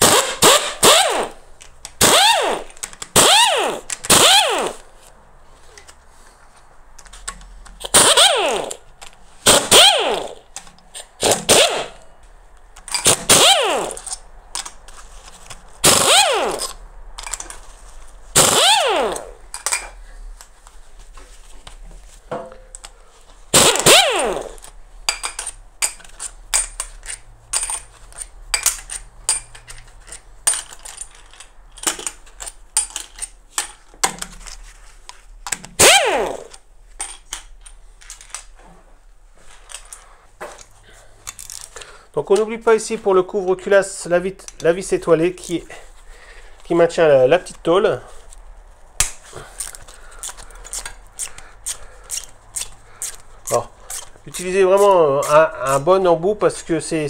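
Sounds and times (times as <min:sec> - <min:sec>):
pneumatic tool bursts: 0:00.0 - 0:01.4, 0:02.0 - 0:04.8, 0:07.8 - 0:08.8, 0:09.4 - 0:10.4, 0:11.2 - 0:12.0, 0:13.0 - 0:14.1, 0:15.8 - 0:16.7, 0:18.4 - 0:19.4, 0:23.5 - 0:24.6, 0:35.8 - 0:36.5.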